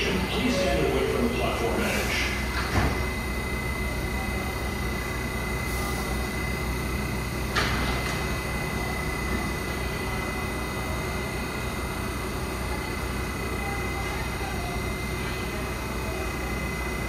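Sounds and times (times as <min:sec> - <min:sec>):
constant high tone: 0:00.0 - 0:02.0, 0:12.7 - 0:17.0
subway train low rumble: 0:00.0 - 0:17.0.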